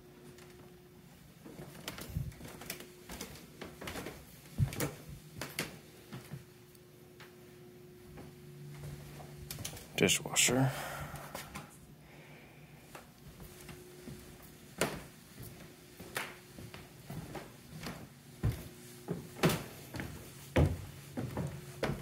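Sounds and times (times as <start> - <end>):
faint steady hum: 0.0 - 22.0
footsteps on wooden stairs: 1.4 - 6.5, 13.3 - 22.0.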